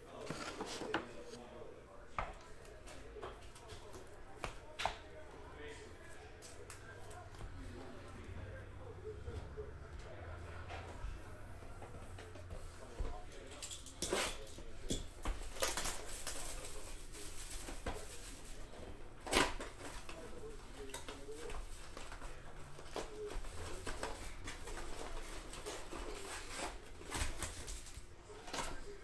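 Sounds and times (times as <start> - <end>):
cards rustling and clicking: 0.1 - 1.4.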